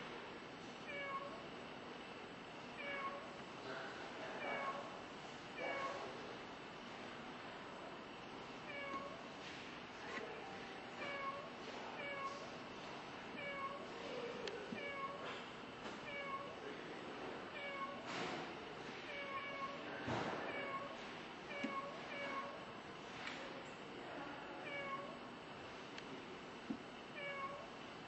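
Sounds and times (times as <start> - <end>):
recorded cat meows: 0.9 - 1.4, 2.8 - 3.3, 4.4 - 4.9, 5.6 - 6.1, 8.7 - 9.2, 11.0 - 12.5, 13.4 - 13.9, 16.0 - 16.6, 17.5 - 18.1, 19.1 - 22.6, 24.6 - 25.2, 27.2 - 27.7.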